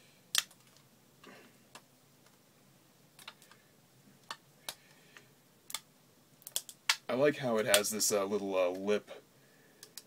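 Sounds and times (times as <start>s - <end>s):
rubber bands snapping: 6.4s - 7.1s.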